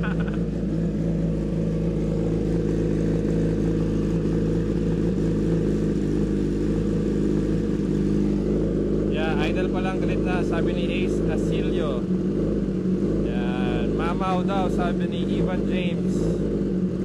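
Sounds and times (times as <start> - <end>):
motorcycle engine idling: 0.0 - 17.0.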